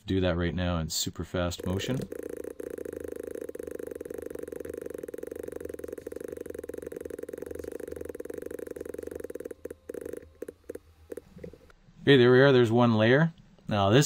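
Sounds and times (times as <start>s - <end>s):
rapid mouse clicking buzz: 1.6s - 11.6s.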